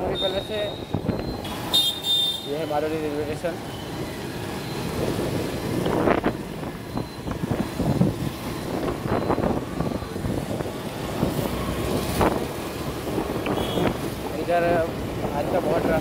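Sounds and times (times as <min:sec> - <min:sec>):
traffic: 0:00.0 - 0:16.0
wind on microphone: 0:04.8 - 0:14.3.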